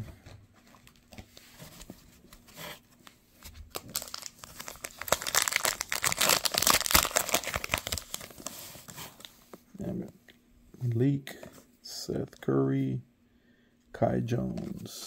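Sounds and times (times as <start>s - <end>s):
foil wrapper crinkling and tearing: 3.7s - 9.3s.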